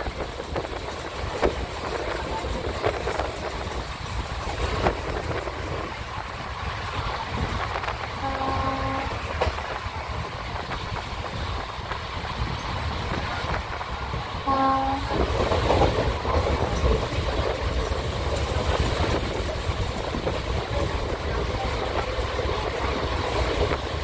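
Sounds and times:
moving train rumble and clatter: 0.0 - 24.0
locomotive horn blasts: 8.1 - 9.4, 14.4 - 15.3.

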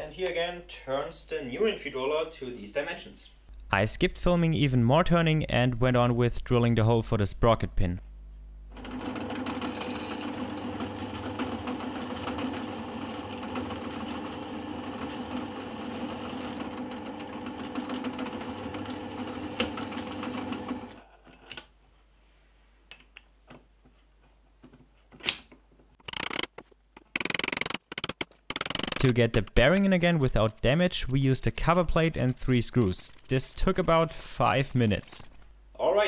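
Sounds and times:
drill press drilling metal: 8.8 - 21.0.

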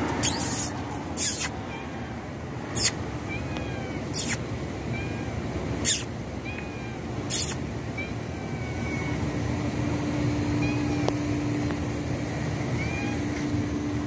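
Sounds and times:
cat mewing faintly: 0.0 - 9.3, 10.4 - 11.4, 12.6 - 13.6
low background hum: 0.0 - 14.0.

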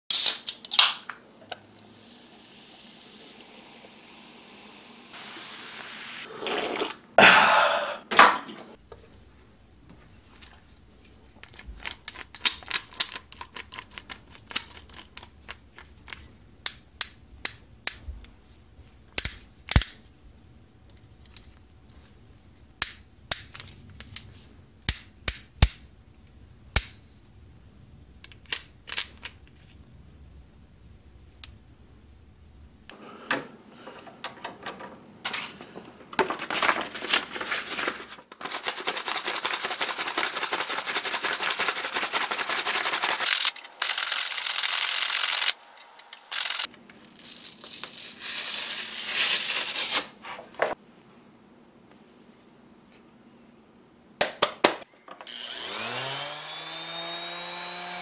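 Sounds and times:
faint hiss: 1.7 - 6.3
hand drill metal clicks and clanks: 11.4 - 16.3.

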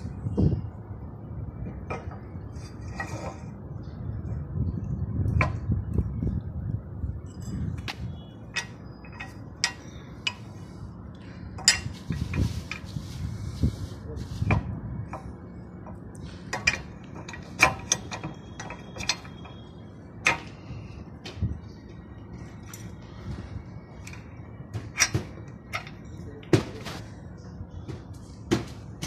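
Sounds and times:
low steady hum: 0.0 - 29.0
metal tools clinking: 8.5 - 10.5.

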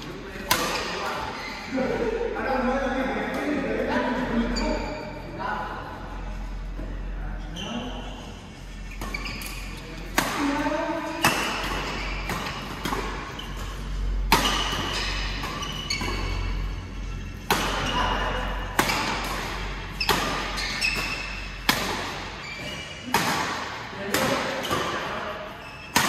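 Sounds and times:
rackets hitting shuttlecock: 0.4 - 1.1, 8.9 - 25.2, 25.8 - 26.0
shoe squeaks on court: 1.2 - 1.8, 7.5 - 9.9, 11.8 - 12.6, 13.3 - 18.0, 19.9 - 23.1, 25.5 - 26.0.

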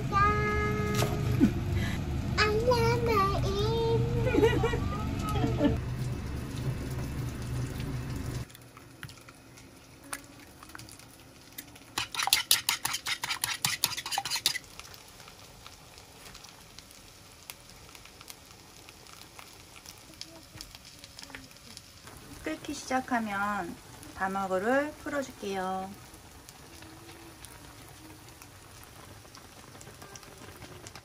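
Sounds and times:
faint kitchen sounds: 0.0 - 31.0
utensil stirring in a pot: 9.2 - 14.9.

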